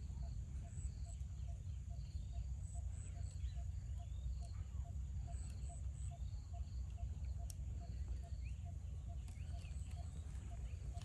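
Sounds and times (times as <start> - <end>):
birds chirping: 0.2 - 11.0.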